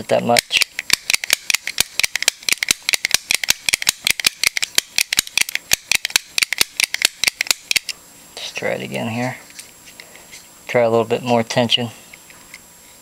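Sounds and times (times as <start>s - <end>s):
pick gun snapping: 0.5s - 7.9s.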